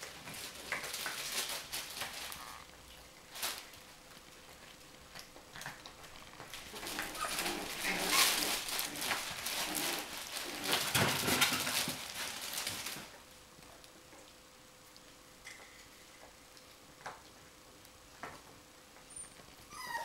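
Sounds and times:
puppy noises: 0:00.0 - 0:13.2, 0:18.9 - 0:20.0
puppies scuffling on bedding: 0:00.0 - 0:14.4.

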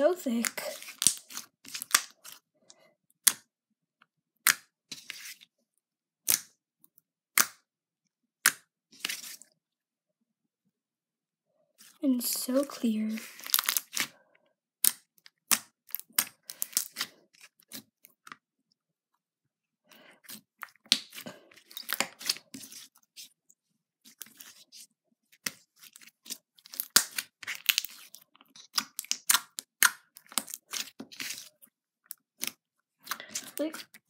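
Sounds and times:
slime clicking and popping: 0:28.6 - 0:30.6.

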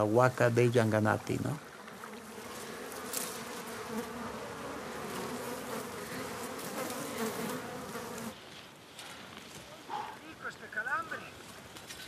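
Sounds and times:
flying insect buzzing: 0:01.7 - 0:08.4.

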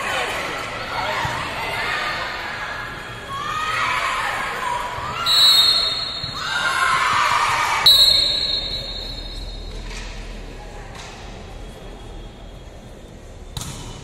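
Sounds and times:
crowd shouting and cheering: 0:00.0 - 0:09.7
referee's whistle blasts: 0:05.2 - 0:06.6, 0:07.8 - 0:09.7.

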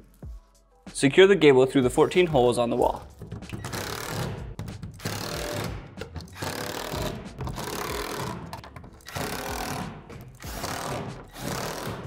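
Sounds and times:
cordless drill driving screws: 0:06.3 - 0:09.8, 0:10.4 - 0:12.0.

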